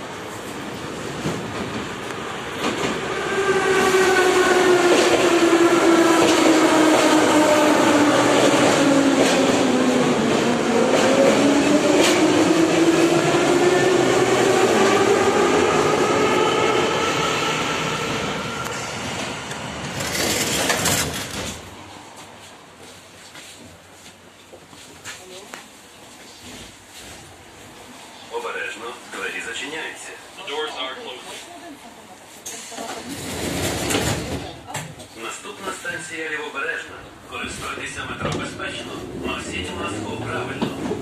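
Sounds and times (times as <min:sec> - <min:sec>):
train wheels rumbling on rails: 0:00.0 - 0:23.0, 0:32.4 - 0:35.1, 0:37.4 - 0:41.0.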